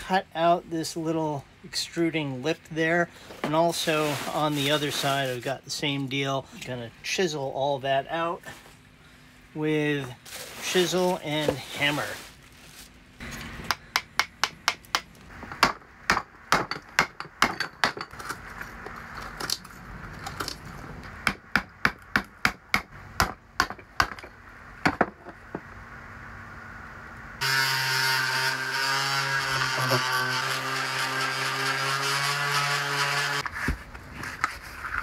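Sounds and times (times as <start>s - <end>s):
hammer striking chisel: 13.6s - 18.2s
electric sander running: 27.4s - 33.4s.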